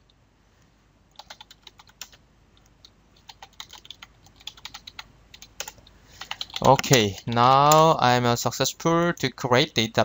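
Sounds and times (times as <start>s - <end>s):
keyboard typing: 1.1s - 8.1s.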